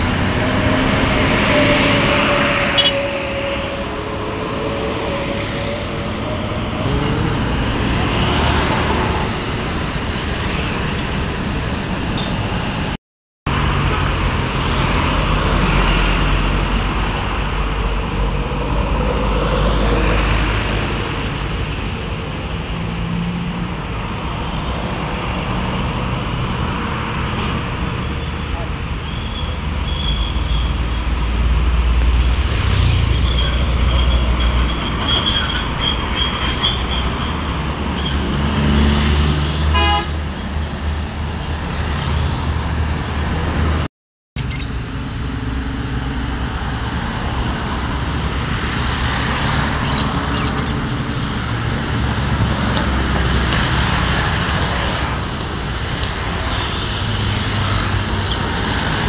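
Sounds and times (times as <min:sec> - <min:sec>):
bus engine rumbling: 0:00.0 - 0:59.0
passing cars and trucks: 0:00.0 - 0:59.0
vehicle horn: 0:02.3 - 0:03.9, 0:39.7 - 0:40.2.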